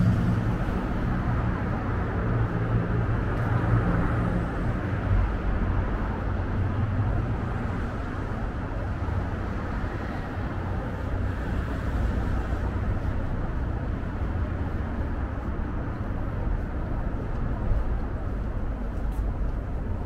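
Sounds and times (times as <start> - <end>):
road traffic hum: 0.0 - 20.0.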